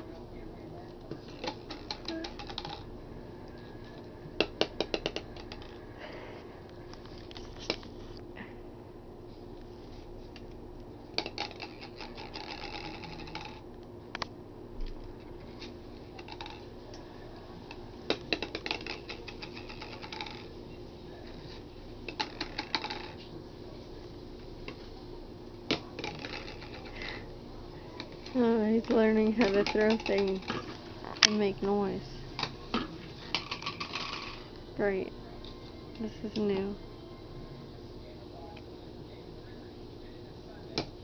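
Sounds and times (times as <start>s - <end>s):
faint steady hum: 0.0s - 41.0s
plastic toy rings clattering: 1.3s - 2.9s, 11.2s - 13.6s, 16.2s - 16.7s, 18.2s - 20.5s, 22.1s - 23.2s, 26.0s - 27.1s, 28.2s - 31.5s, 33.3s - 34.5s.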